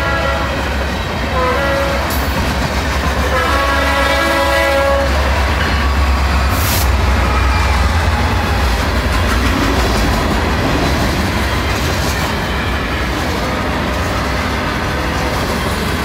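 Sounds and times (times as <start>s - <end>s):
locomotive air horn: 0.0s - 2.2s, 3.2s - 8.4s
locomotive engines rumbling: 0.0s - 16.0s
freight cars rolling past: 5.0s - 16.0s.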